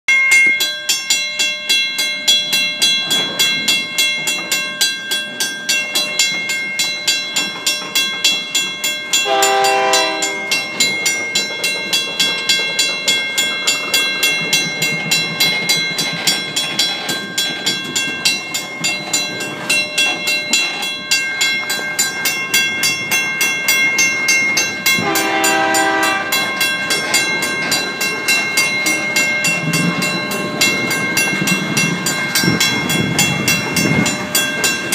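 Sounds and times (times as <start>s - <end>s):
crossing bell ringing: 0.1s - 34.9s
train horn: 9.2s - 10.5s, 25.0s - 26.5s
freight cars rumbling and clattering: 10.3s - 34.9s.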